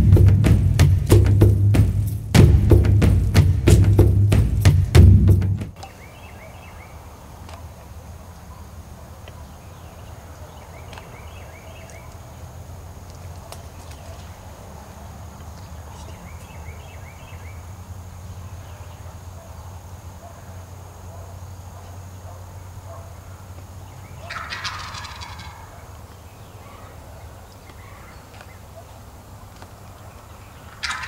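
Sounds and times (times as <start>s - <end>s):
turkey gobbling: 24.1s - 29.7s, 30.5s - 31.0s.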